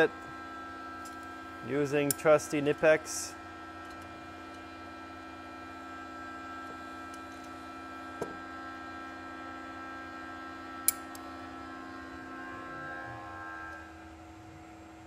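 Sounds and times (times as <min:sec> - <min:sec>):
steady tonal hum: 0:00.0 - 0:15.0
metallic clicks of pliers wrench: 0:02.0 - 0:02.3.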